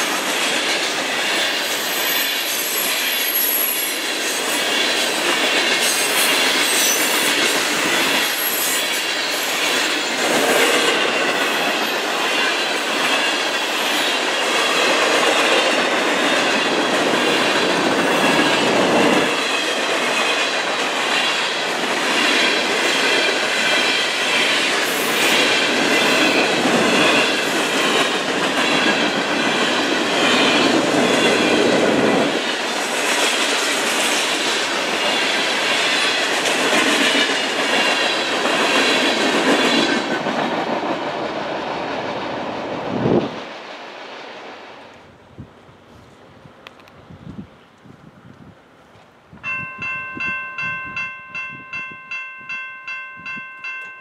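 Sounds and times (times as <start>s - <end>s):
wheels rolling on rails: 0.0s - 45.1s
high-pitched wheel squeal: 1.6s - 4.0s, 8.2s - 9.6s.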